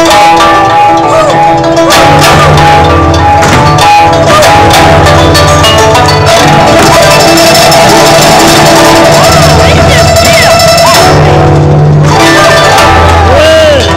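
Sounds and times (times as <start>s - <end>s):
performance music with bass: 0.0s - 13.9s
quick percussion hits: 0.0s - 13.9s.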